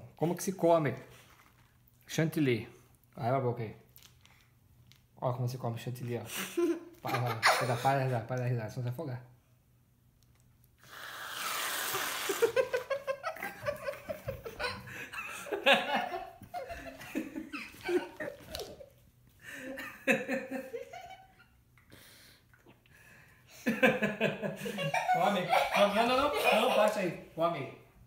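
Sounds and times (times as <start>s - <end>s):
people laughing: 6.5s - 8.2s, 12.3s - 18.8s, 23.6s - 27.2s
aerosol whipped cream hiss: 10.8s - 12.8s.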